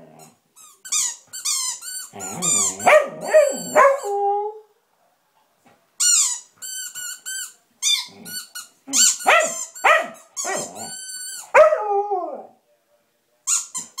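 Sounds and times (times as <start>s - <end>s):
squeaky toy squeaks: 0.6s - 4.2s, 6.0s - 11.6s, 13.5s - 14.0s.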